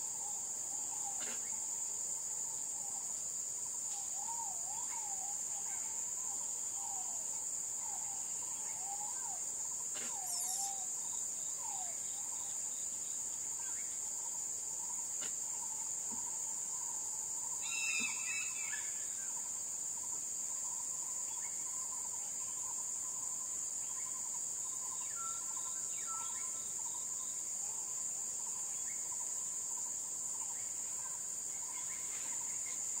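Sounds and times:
high-pitched insect chorus: 0:00.0 - 0:33.0
bird calls: 0:07.9 - 0:12.6, 0:17.6 - 0:19.4.

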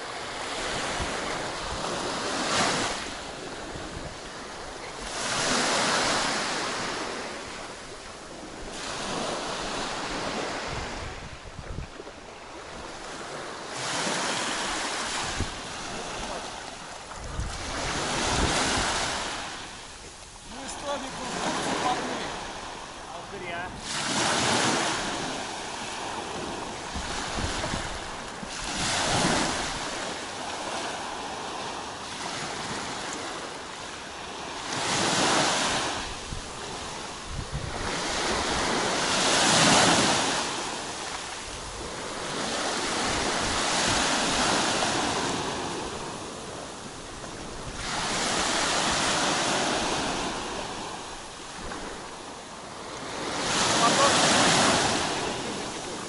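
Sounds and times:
waves breaking on pebble shore: 0:00.0 - 0:11.3, 0:12.1 - 0:33.4, 0:34.1 - 0:52.2, 0:52.8 - 0:56.0
wind on microphone: 0:00.0 - 0:30.1, 0:34.8 - 0:52.2.

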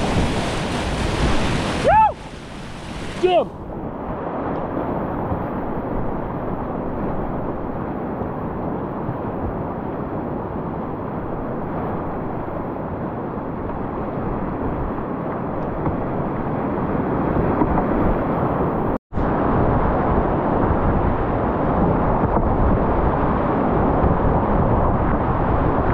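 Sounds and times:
whitewater rapids rushing: 0:00.0 - 0:03.5
wind buffeting microphone: 0:00.0 - 0:25.9.

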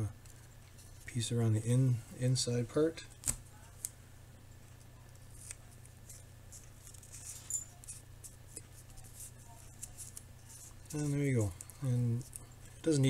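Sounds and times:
steady low hum: 0:00.0 - 0:13.0
tape and plastic straw crinkling: 0:04.7 - 0:13.0.

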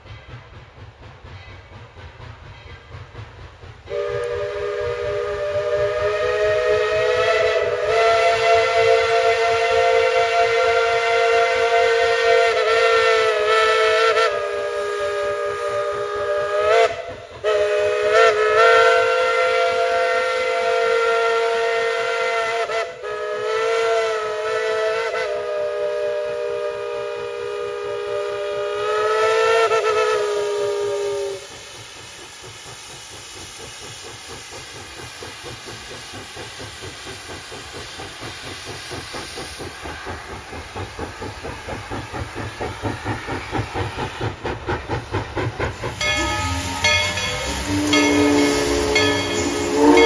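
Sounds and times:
steam locomotive whistle: 0:03.9 - 0:31.8, 0:45.8 - 0:50.0.

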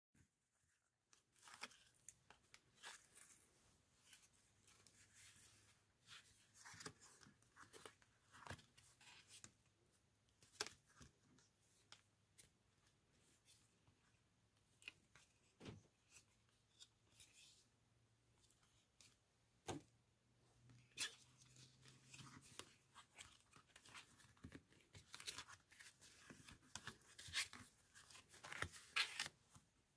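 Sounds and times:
card rustling and sliding: 0:20.8 - 0:29.4.

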